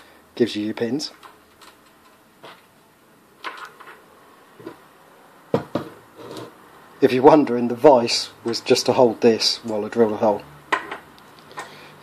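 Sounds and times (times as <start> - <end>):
light clicks and knocks of parts: 1.1 - 2.7, 10.7 - 11.8.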